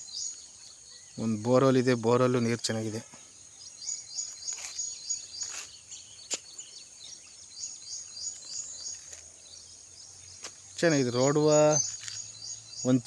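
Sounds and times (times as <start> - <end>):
insects chirping: 0.0 - 13.0.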